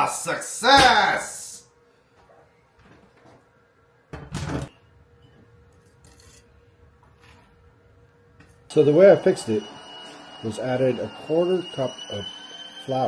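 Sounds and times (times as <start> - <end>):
spatula scraping on metal rack: 6.0 - 6.5.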